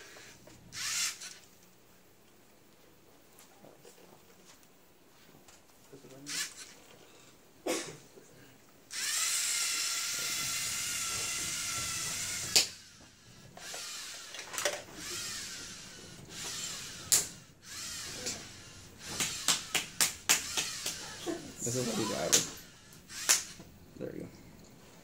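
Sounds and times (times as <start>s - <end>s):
robot drive motors whining: 0.1s - 1.4s, 8.9s - 19.5s, 20.4s - 23.6s
sharp clicks: 23.1s - 23.7s.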